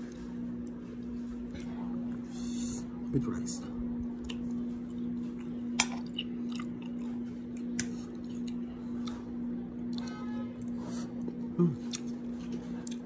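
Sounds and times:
steady low hum: 0.0 - 13.0
person chewing food: 4.1 - 13.0.

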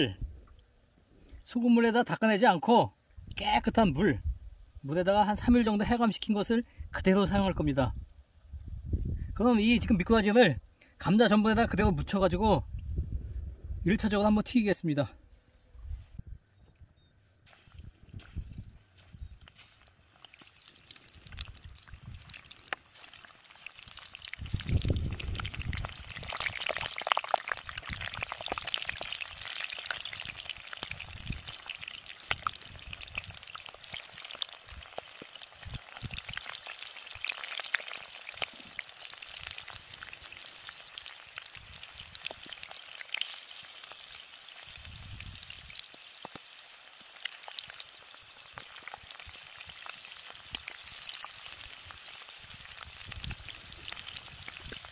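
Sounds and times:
fish frying in hot oil: 17.5 - 54.9.

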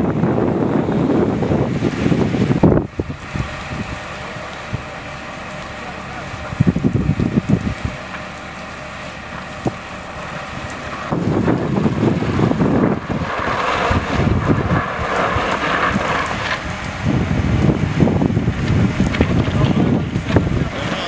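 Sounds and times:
rushing wind hiss: 0.0 - 5.0, 9.5 - 21.0
wind buffeting microphone: 0.0 - 5.1, 6.2 - 8.3, 9.2 - 21.0.

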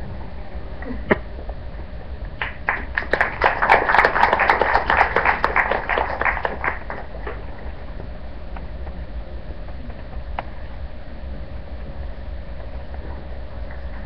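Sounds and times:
audience applauding: 2.4 - 7.5.

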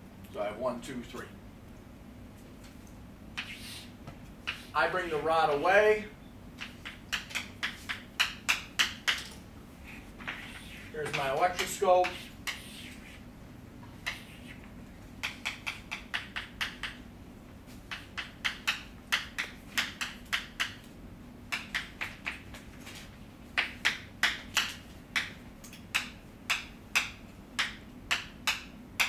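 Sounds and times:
chalk tapping on blackboard: 3.4 - 3.8, 4.5 - 4.8, 6.6 - 9.3, 10.2 - 13.2, 14.0 - 17.0, 17.7 - 20.8, 21.5 - 22.6, 23.6 - 28.7.

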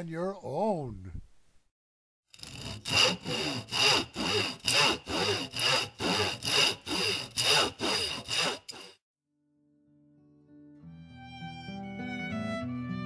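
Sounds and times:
hand saw cutting wood: 2.4 - 9.0.

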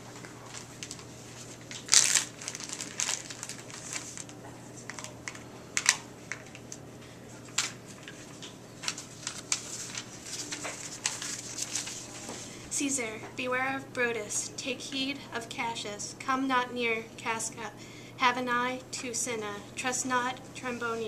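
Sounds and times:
plastic bag crinkling and rustling: 0.0 - 6.8, 7.4 - 12.4.

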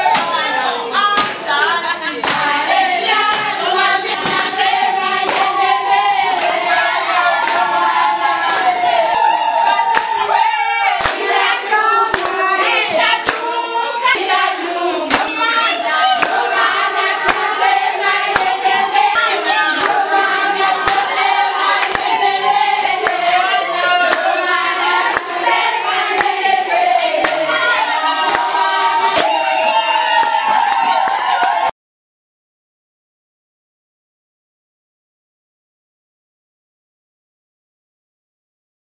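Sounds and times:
women singing together: 0.0 - 31.3
hand claps: 1.2 - 1.4, 2.2 - 2.5, 3.2 - 3.6, 5.2 - 5.5, 6.3 - 6.6, 9.9 - 10.2, 11.0 - 11.3, 12.1 - 12.4, 13.2 - 13.5, 15.1 - 15.5, 16.2 - 16.4, 17.2 - 17.5, 18.3 - 18.6, 19.8 - 20.1, 20.8 - 21.2, 21.8 - 22.2, 23.0 - 23.3, 25.0 - 25.4, 26.1 - 26.6, 27.2 - 27.5, 28.2 - 28.6.

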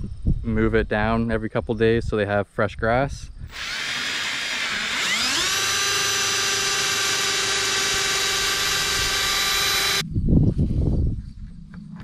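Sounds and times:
power drill running: 3.5 - 10.0.

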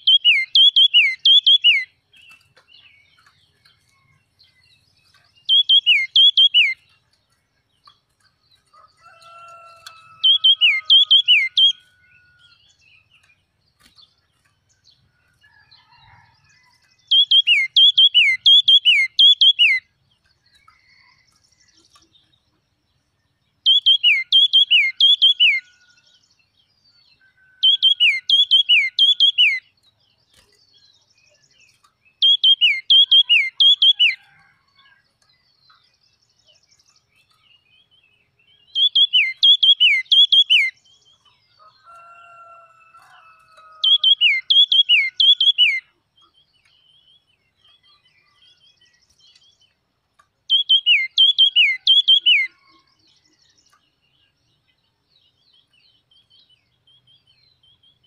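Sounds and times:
bird singing descending notes: 5.1 - 7.0, 9.0 - 13.2, 17.0 - 19.8, 32.1 - 34.2, 38.6 - 42.6, 43.2 - 46.4, 50.5 - 53.5.

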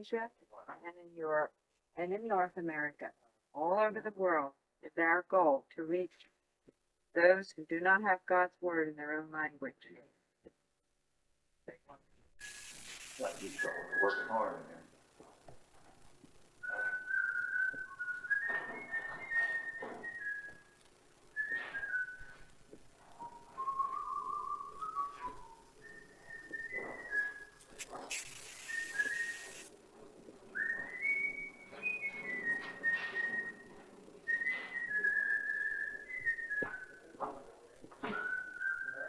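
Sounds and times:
sharp hiss: 12.4 - 13.7, 27.6 - 29.7
person whistling a tune: 13.2 - 14.5, 16.6 - 22.5, 23.2 - 27.6, 28.4 - 29.6, 30.5 - 37.2, 38.0 - 39.0.

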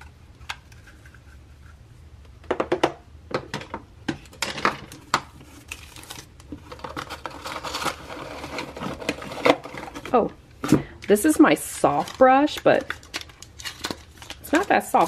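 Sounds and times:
paper sleeve rustling: 11.2 - 15.0.

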